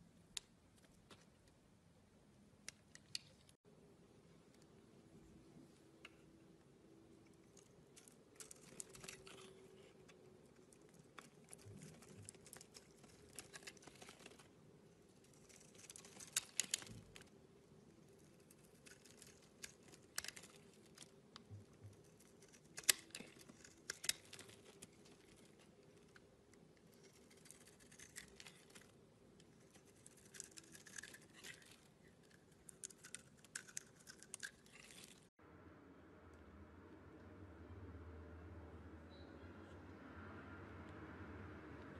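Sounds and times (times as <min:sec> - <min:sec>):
knife shaving soap: 0:07.2 - 0:35.3.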